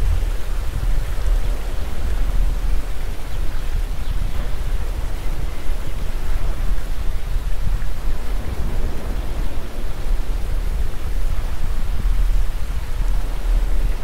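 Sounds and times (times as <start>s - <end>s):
loud rushing noise with rumble: 8.0s - 14.0s.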